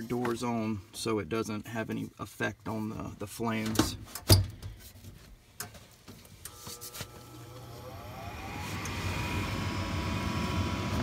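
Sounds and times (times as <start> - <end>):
furnace inducer motor spinning up: 7.1 - 11.0.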